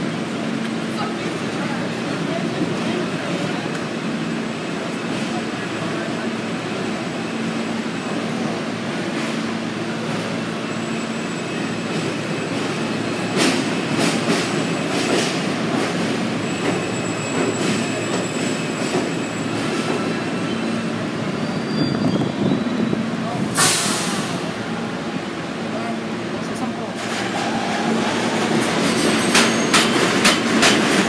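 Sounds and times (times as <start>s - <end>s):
subway train rumbling: 0.0s - 31.0s
train wheels clacking on track: 11.7s - 20.4s, 27.0s - 31.0s.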